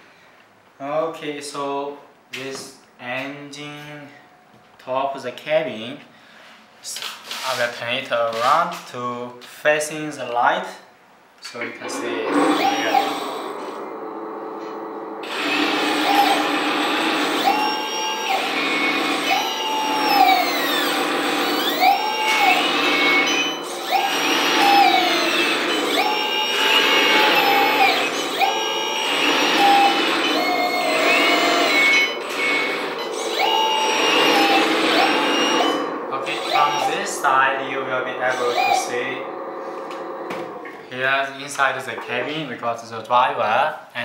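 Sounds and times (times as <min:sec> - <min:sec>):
toy truck drivetrain whining: 0:12.3 - 0:13.8, 0:15.2 - 0:40.1.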